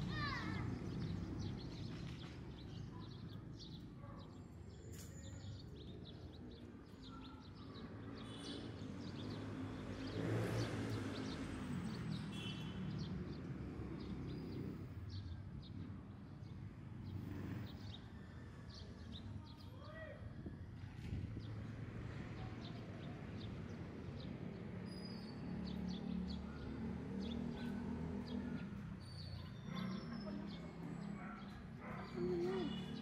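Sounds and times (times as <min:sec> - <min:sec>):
birds chirping: 0:27.2 - 0:33.0.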